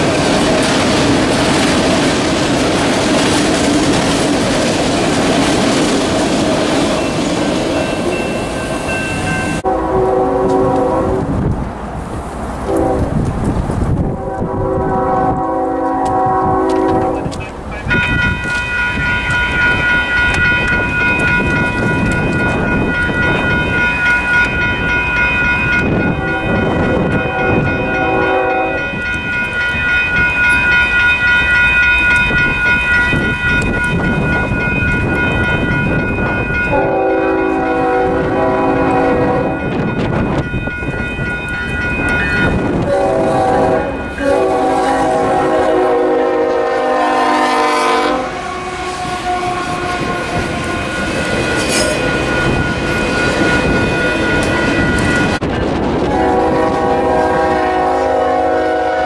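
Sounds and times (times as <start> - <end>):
railroad crossing bell ringing: 6.2 - 11.1, 14.3 - 59.0
locomotive air horn blasts: 9.6 - 11.3, 12.7 - 13.1, 14.2 - 17.4, 26.2 - 29.0, 36.7 - 39.7, 42.8 - 51.0, 56.0 - 59.0.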